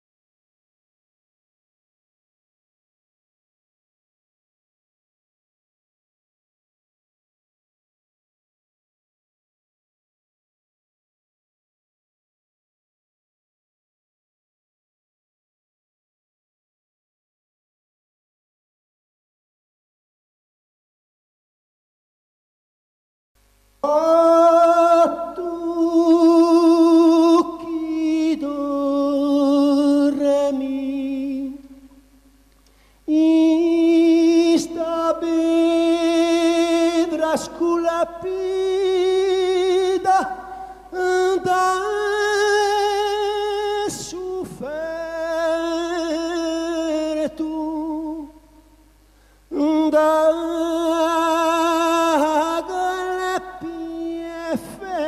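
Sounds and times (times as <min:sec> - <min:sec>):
person singing with vibrato: 0:23.8 - 0:32.1, 0:33.0 - 0:55.0.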